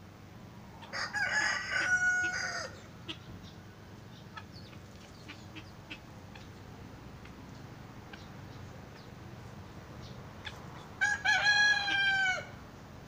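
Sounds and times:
rooster crowing: 0:00.8 - 0:02.9, 0:11.0 - 0:12.6.

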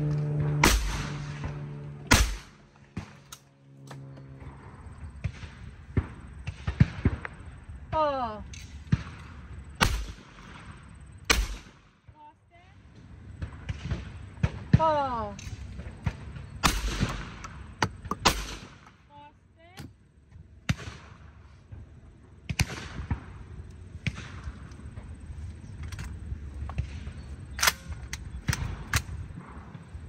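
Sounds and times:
shotgun shots: 0:00.4 - 0:03.3, 0:08.8 - 0:12.0, 0:13.4 - 0:19.0, 0:22.5 - 0:23.4.

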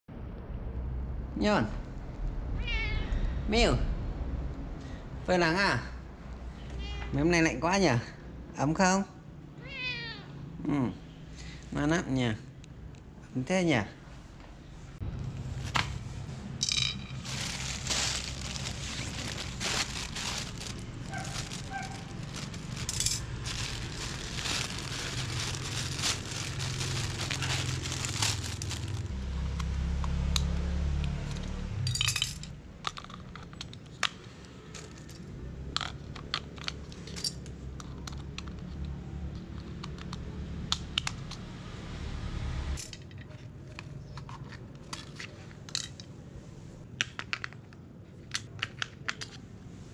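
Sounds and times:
low rumble: 0:00.1 - 0:05.3
plastic bag crinkling and tearing: 0:17.1 - 0:29.2.

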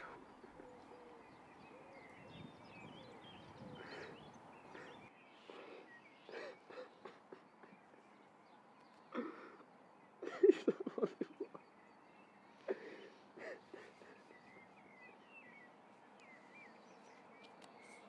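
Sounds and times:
faint bird chirps: 0:00.0 - 0:18.0.

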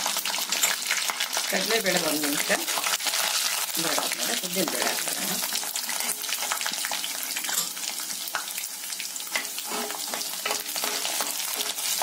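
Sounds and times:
seeds sizzling and popping in oil: 0:00.0 - 0:12.0
ladle stirring in pan: 0:09.2 - 0:12.0.

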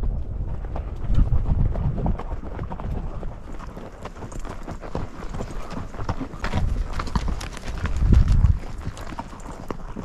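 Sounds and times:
mule hooves on dirt trail: 0:00.0 - 0:10.0.

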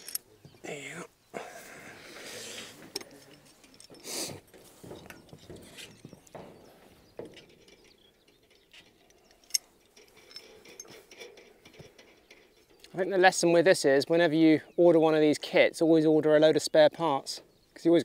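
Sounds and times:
metallic clicks and scrapes: 0:00.0 - 0:00.3, 0:02.2 - 0:06.5, 0:07.1 - 0:13.0.

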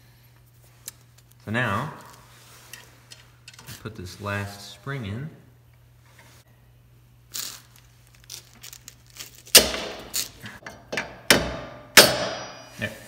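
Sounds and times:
spring snapping metal on metal: 0:09.6 - 0:12.6.

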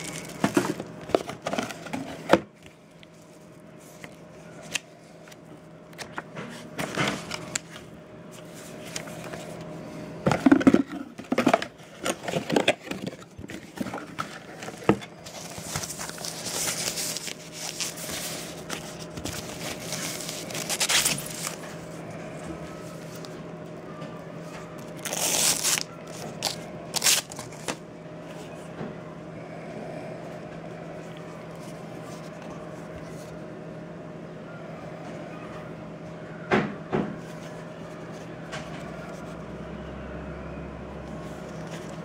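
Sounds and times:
plastic wrapping crinkling: 0:00.0 - 0:01.9, 0:11.3 - 0:21.9, 0:24.8 - 0:27.7.

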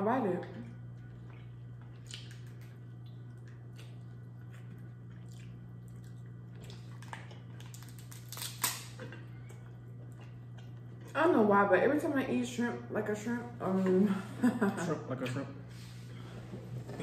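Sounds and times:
steady low hum: 0:00.0 - 0:17.0
wet chewing and smacking: 0:00.9 - 0:11.1
shells cracking while peeled: 0:05.2 - 0:09.6.

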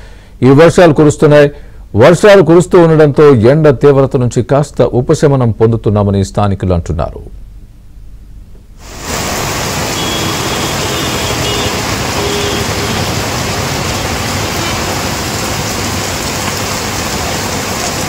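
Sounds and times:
heavy rain on road: 0:08.8 - 0:18.0.

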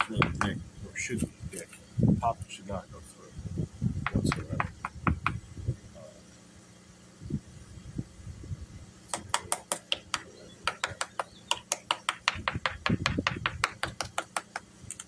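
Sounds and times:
knuckles rapping on fiberglass hull: 0:00.0 - 0:00.6, 0:04.1 - 0:05.4, 0:09.1 - 0:15.0.

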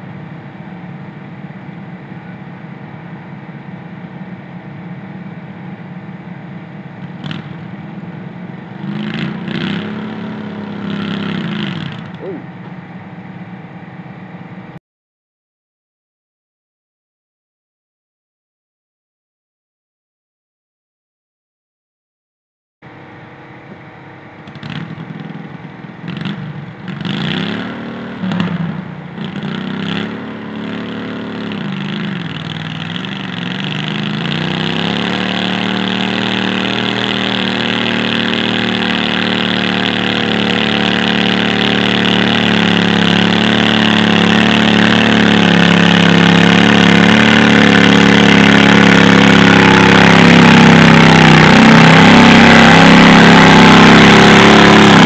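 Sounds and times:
tractor engine revving: 0:06.9 - 0:12.7, 0:24.4 - 0:55.0.

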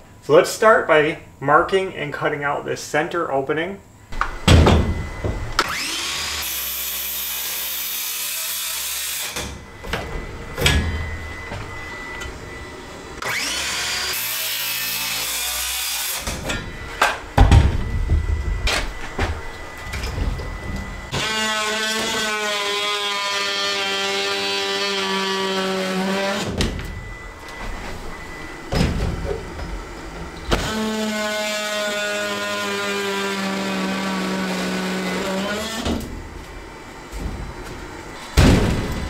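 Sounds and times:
knocks and thumps: 0:04.2 - 0:05.6, 0:16.5 - 0:20.9, 0:38.4 - 0:39.0
multi-tool cutting wood: 0:05.6 - 0:09.6, 0:13.2 - 0:16.6, 0:21.1 - 0:27.2, 0:30.5 - 0:36.2.

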